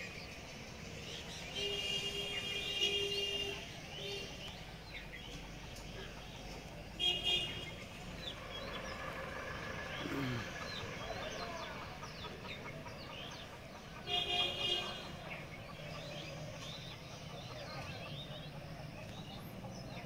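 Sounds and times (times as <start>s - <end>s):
small birds chirping: 0.0s - 20.0s
vehicle horn blasts: 7.0s - 7.8s, 14.1s - 15.1s.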